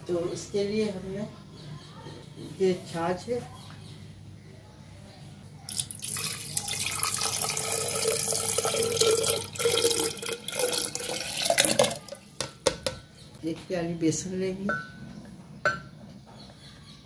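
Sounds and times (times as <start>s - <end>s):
buttermilk pouring and splashing: 5.7s - 12.3s.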